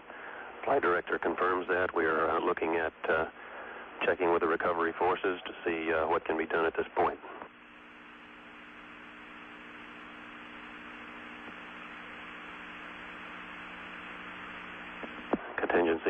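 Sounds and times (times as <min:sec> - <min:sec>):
steady hiss: 0:07.0 - 0:15.4
low many-toned hum: 0:07.6 - 0:15.4.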